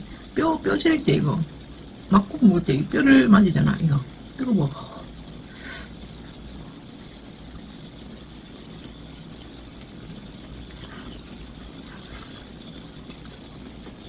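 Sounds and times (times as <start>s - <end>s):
meat sizzling on a grill: 0.0s - 14.0s
faint clicks: 6.0s - 14.0s.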